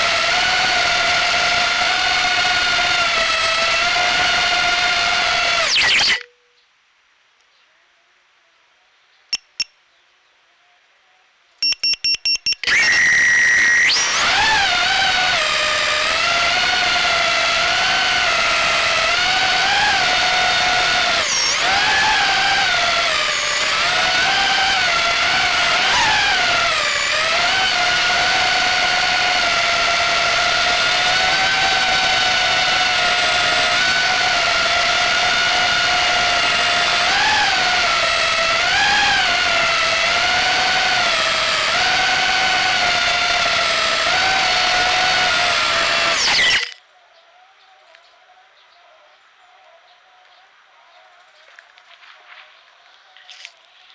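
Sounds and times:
drone motors whining: 0.0s - 6.3s, 12.6s - 46.8s
electronic beeps: 11.6s - 13.8s.

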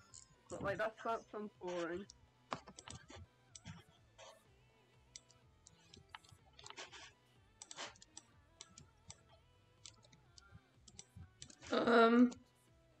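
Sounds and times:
computer keys clicking: 2.0s - 3.8s, 5.2s - 7.0s, 7.6s - 11.6s.

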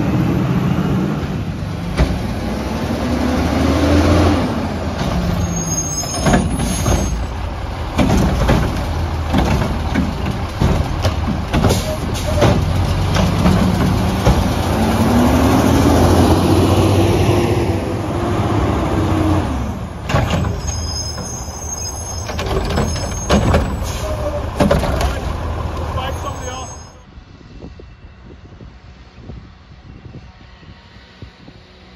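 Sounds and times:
garbage truck engine running: 3.9s - 16.8s.

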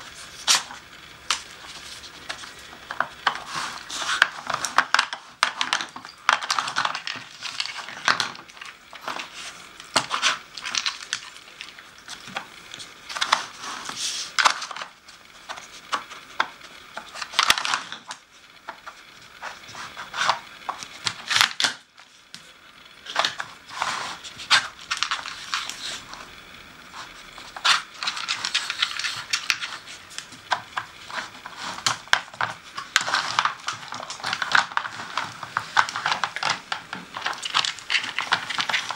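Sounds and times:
plastic tiles clattering on puzzle board: 2.3s - 12.5s, 27.5s - 38.9s.

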